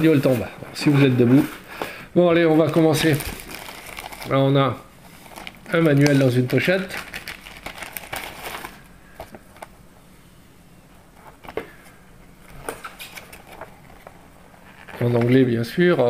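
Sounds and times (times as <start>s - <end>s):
paper rustling: 2.4s - 9.7s, 11.2s - 16.0s
plastic pouch crinkling: 2.5s - 9.8s, 12.4s - 15.4s.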